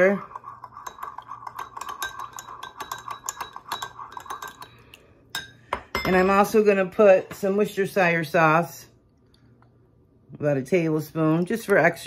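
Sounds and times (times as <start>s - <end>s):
spoon clinking against glass: 0.7s - 6.2s.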